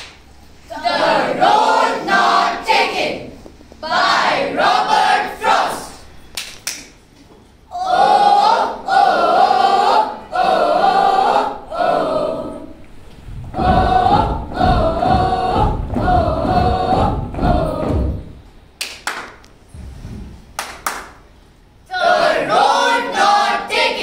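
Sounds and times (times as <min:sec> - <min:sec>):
children's choir singing: 0:00.7 - 0:06.1, 0:07.7 - 0:18.5, 0:21.8 - 0:24.0
feet stamping on stage: 0:13.4 - 0:18.4.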